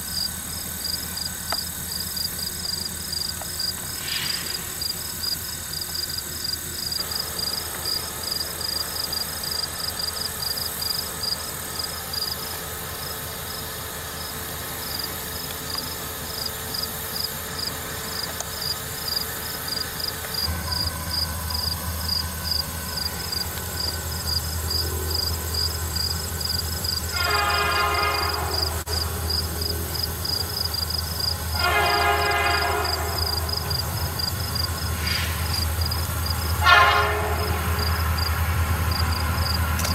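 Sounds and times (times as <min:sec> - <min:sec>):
diesel locomotives rumbling: 0:00.0 - 0:39.9
insects chirping: 0:00.0 - 0:39.9
locomotive horn blasts: 0:24.8 - 0:30.0, 0:31.3 - 0:35.5, 0:36.4 - 0:38.7.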